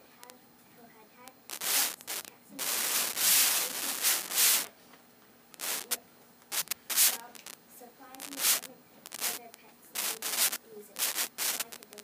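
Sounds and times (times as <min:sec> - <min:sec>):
people talking: 0:00.0 - 0:04.6, 0:05.6 - 0:06.1, 0:07.0 - 0:12.0
rubbing rustling noise: 0:01.5 - 0:04.7, 0:05.6 - 0:07.4, 0:08.3 - 0:11.8.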